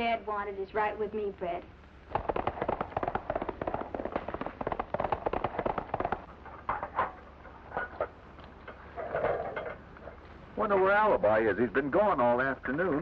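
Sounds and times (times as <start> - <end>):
horse hoofbeats on dirt: 2.1 - 6.6.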